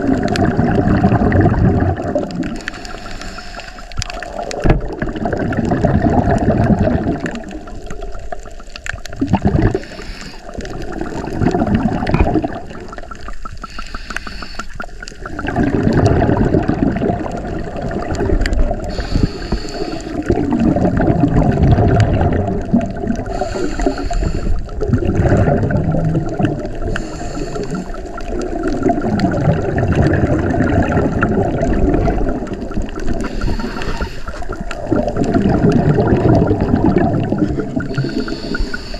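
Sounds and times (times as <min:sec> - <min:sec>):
bubbles gurgling underwater: 0:00.0 - 0:38.9
diver breathing through regulator: 0:02.6 - 0:04.6, 0:09.6 - 0:10.9, 0:13.6 - 0:15.2, 0:18.8 - 0:20.4, 0:23.1 - 0:24.9, 0:26.8 - 0:28.2, 0:33.1 - 0:35.2, 0:37.3 - 0:38.9.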